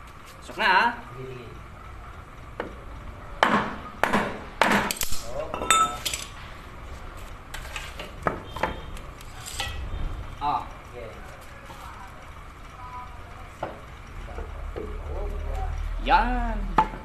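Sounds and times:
metallic clinks and rings: 0:05.4 - 0:06.3.

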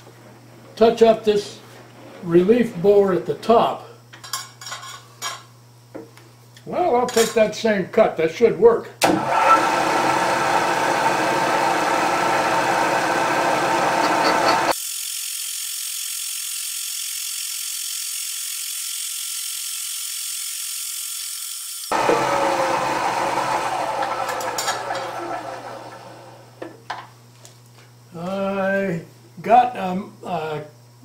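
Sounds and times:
milling machine spindle running: 0:09.1 - 0:26.6.

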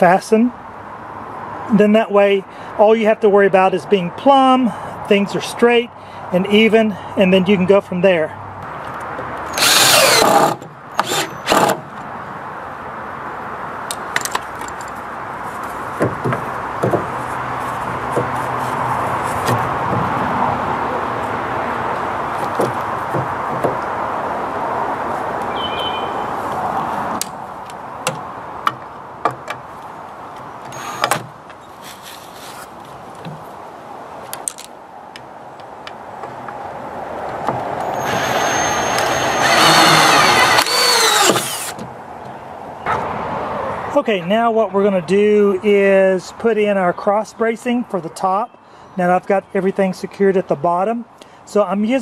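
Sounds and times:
clicks and knocks of tools: 0:34.3 - 0:36.6.

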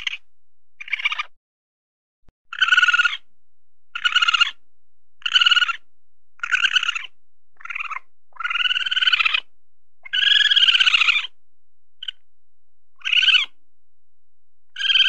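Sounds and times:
weasel trilling calls: 0:00.0 - 0:00.2, 0:00.8 - 0:01.3, 0:02.5 - 0:03.3, 0:03.9 - 0:04.6, 0:05.2 - 0:11.4, 0:12.0 - 0:12.2, 0:13.0 - 0:13.6, 0:14.8 - 0:15.0.

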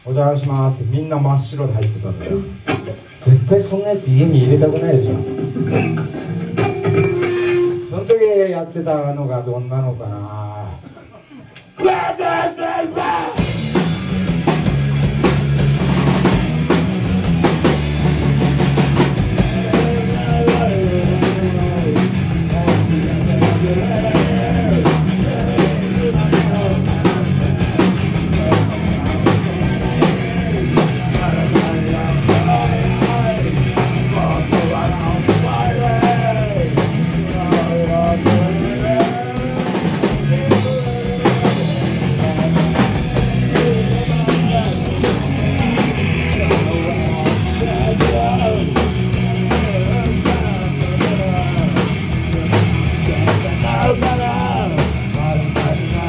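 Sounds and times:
electric guitar: 0:01.7 - 0:08.3, 0:13.3 - 0:56.0
drum kit driving beat: 0:01.7 - 0:08.4, 0:13.0 - 0:56.0
wavering lead melody: 0:04.3 - 0:08.4.

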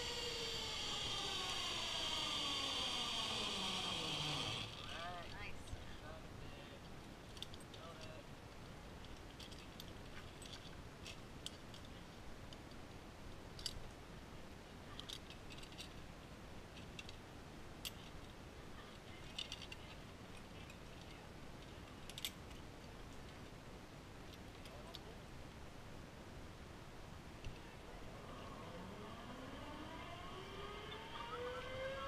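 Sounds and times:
low steady hiss: 0:00.0 - 0:32.0
carabiners clicking and clinking: 0:15.0 - 0:15.9, 0:19.3 - 0:21.1, 0:21.9 - 0:22.4.

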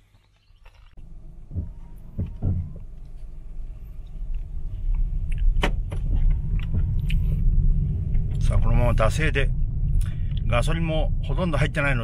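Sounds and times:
car engine rumble from inside: 0:01.0 - 0:12.0.

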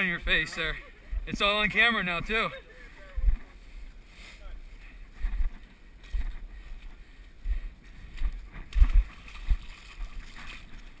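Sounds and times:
footsteps in wet mud: 0:05.0 - 0:11.0.

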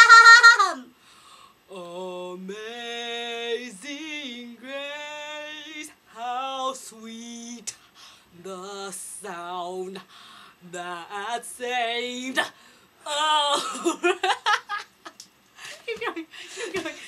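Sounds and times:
woman belting high note: 0:00.0 - 0:00.8
lower voice singing held notes: 0:01.7 - 0:07.8.

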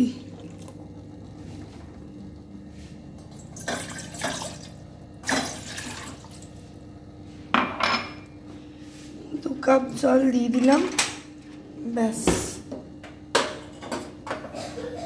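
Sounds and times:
water splashing into a saucepan: 0:03.4 - 0:06.5.

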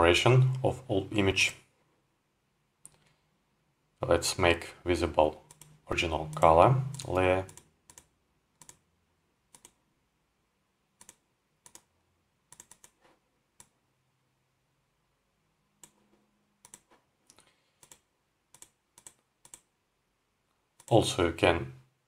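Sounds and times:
computer mouse clicks: 0:02.8 - 0:03.2, 0:05.4 - 0:08.8, 0:09.5 - 0:09.8, 0:11.0 - 0:11.9, 0:12.5 - 0:13.8, 0:15.8 - 0:19.7, 0:20.8 - 0:21.0.

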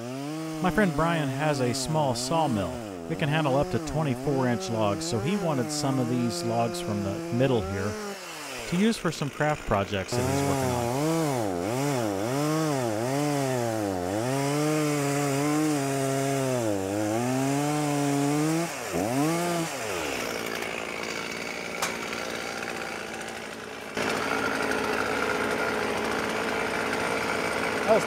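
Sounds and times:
chainsaw cutting: 0:00.0 - 0:28.0
tractor diesel engine running: 0:08.7 - 0:11.4, 0:20.0 - 0:28.0.

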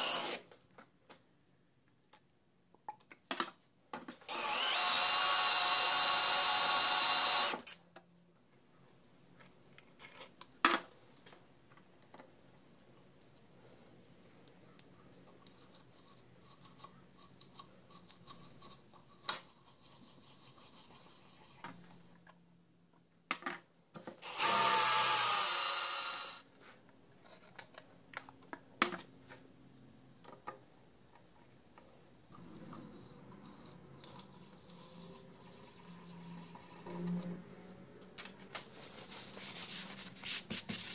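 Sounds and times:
power drill whining: 0:00.0 - 0:00.4, 0:04.3 - 0:07.8, 0:24.2 - 0:26.4.

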